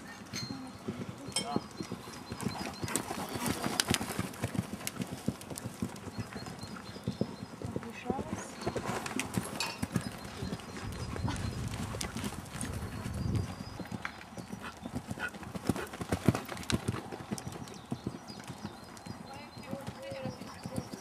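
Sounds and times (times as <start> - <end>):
hoofbeats on sand: 0.5 - 21.0.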